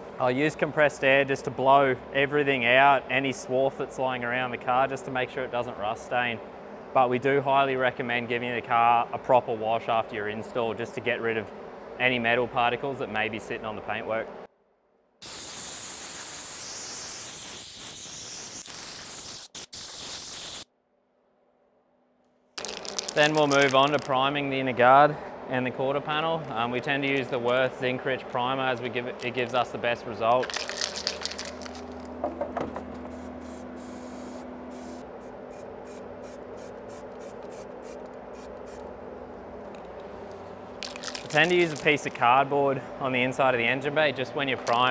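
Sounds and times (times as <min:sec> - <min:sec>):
compressed air blow gun hissing: 0:15.2 - 0:20.7, 0:33.0 - 0:38.8.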